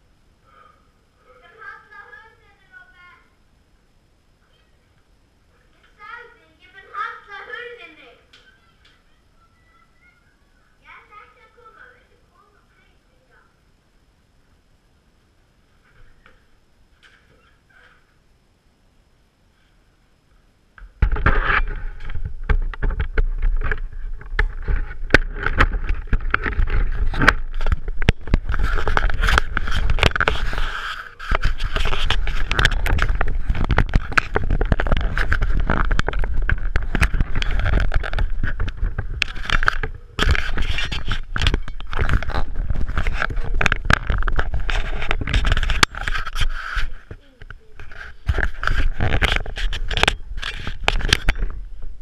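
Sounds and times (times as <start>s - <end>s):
scraping and clicking: 21.1s - 51.6s.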